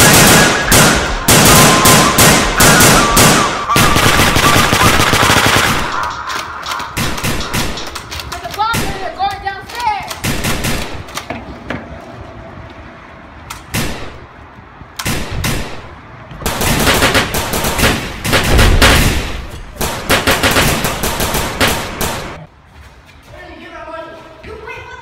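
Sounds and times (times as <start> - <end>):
single gunshots: 0.0 - 6.1, 15.0 - 22.5
automatic gunfire bursts: 0.0 - 6.2, 16.5 - 22.4.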